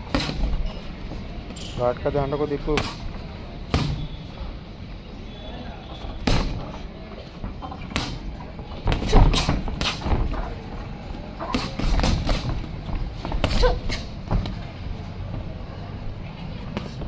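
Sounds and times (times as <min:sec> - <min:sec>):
boxing gloves thudding punches: 0:00.0 - 0:00.7, 0:02.7 - 0:04.2, 0:06.1 - 0:06.7, 0:07.8 - 0:10.4, 0:11.4 - 0:14.6.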